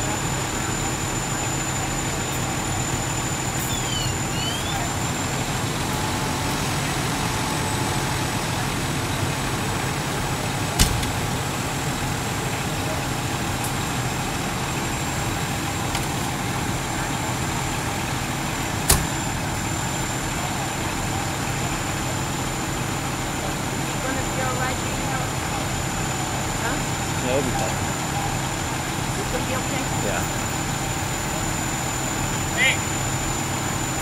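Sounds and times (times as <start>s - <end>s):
fire engines idling: 0.0s - 34.0s
sharp knocks: 10.8s - 11.3s, 18.9s - 19.3s.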